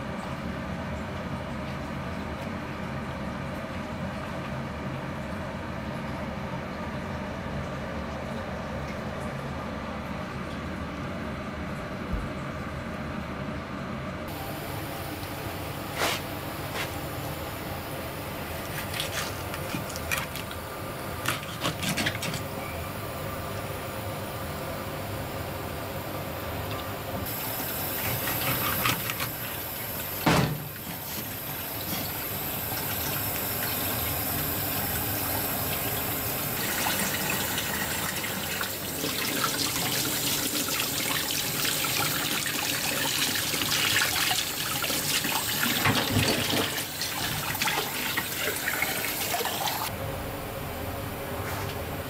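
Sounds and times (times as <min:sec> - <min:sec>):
water running from a tap: 0:26.7 - 0:49.9
knock on cutting board: 0:30.3 - 0:30.7.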